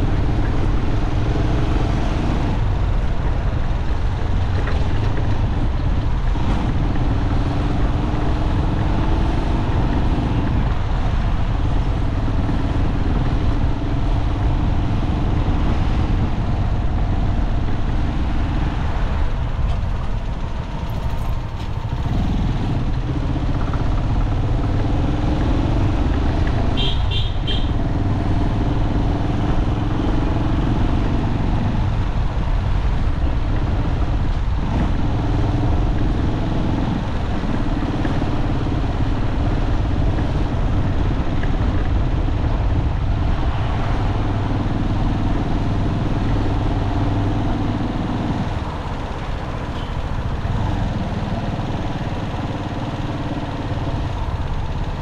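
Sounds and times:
road traffic: 0.0 - 55.0
high vehicle horn beeps: 26.8 - 27.8.

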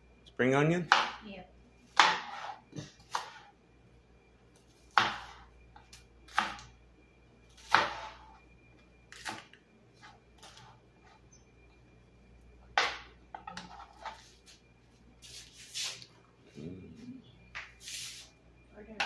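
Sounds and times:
knife chopping on plastic board: 0.9 - 1.2, 2.0 - 2.4, 4.9 - 5.4.

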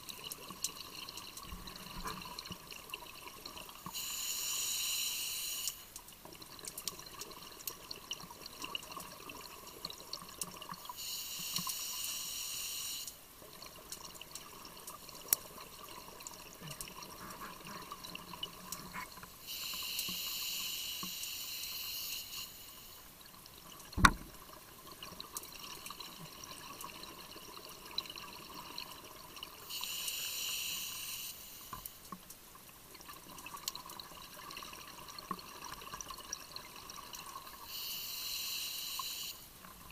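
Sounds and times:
regulator exhaled bubbles hissing: 3.9 - 5.9, 16.5 - 23.0, 29.6 - 31.8, 37.5 - 39.5
faint crackling clicks: 5.6 - 8.0, 13.0 - 20.2, 31.7 - 32.4.

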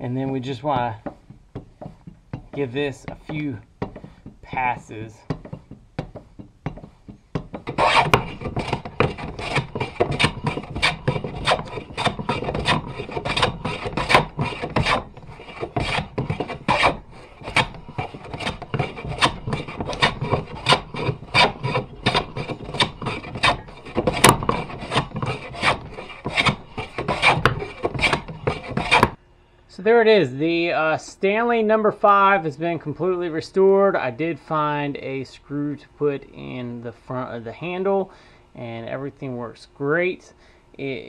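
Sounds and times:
hand plane shearing wood: 0.0 - 29.2.

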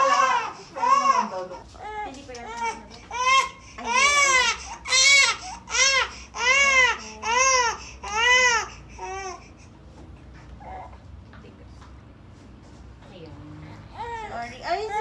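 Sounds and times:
infant crying: 0.0 - 9.6.

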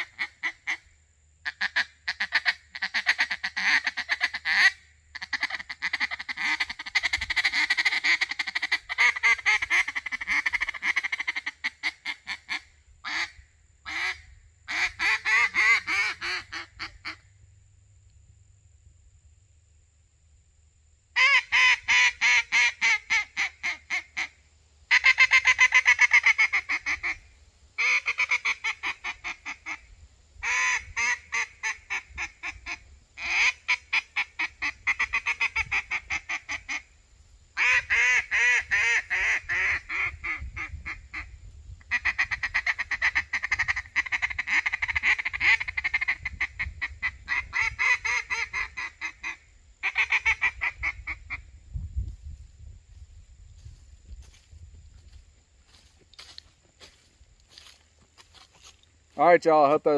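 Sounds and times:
duck call quacks: 0.0 - 17.2, 21.2 - 27.2, 27.8 - 36.9, 37.6 - 41.3, 41.9 - 51.4.

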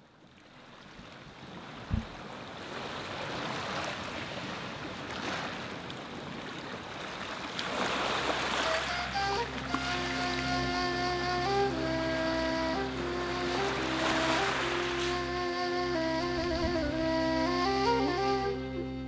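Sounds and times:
sea surf waves: 0.4 - 18.6
brief low thump: 1.9 - 2.2
music with held notes: 8.5 - 19.0.

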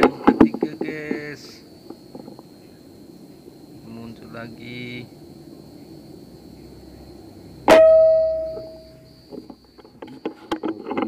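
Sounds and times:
metallic ringing tone: 7.7 - 9.2.

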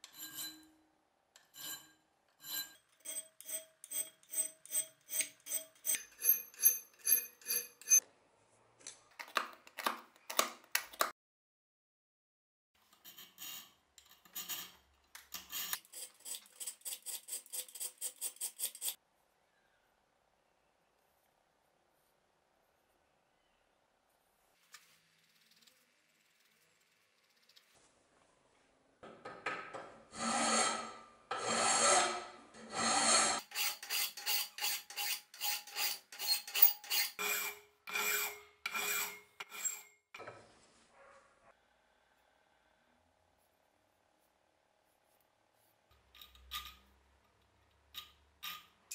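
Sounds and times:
hand file rasping on steel: 15.4 - 19.0, 30.2 - 39.9.

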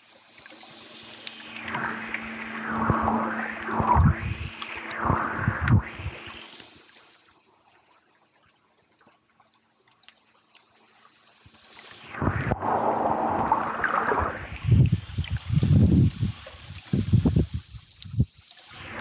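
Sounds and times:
underwater gurgling and rushing: 0.0 - 7.4, 11.4 - 19.0.

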